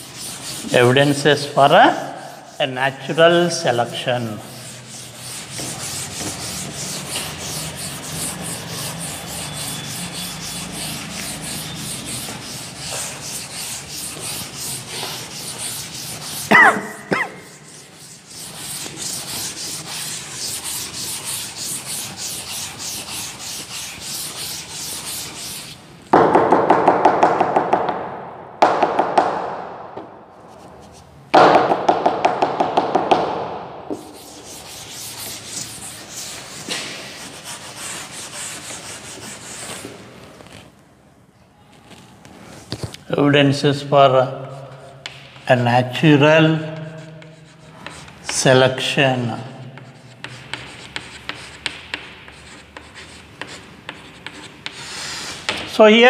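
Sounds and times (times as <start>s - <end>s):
duster scrubbing chalkboard: 0.0s - 25.8s, 33.9s - 40.7s, 44.5s - 55.8s
sharp knocks: 26.1s - 30.1s, 31.3s - 34.0s.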